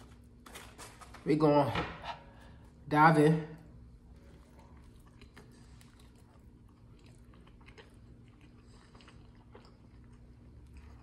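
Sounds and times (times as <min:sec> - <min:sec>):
steady low hum: 0:00.0 - 0:11.0
person chewing: 0:04.0 - 0:11.0.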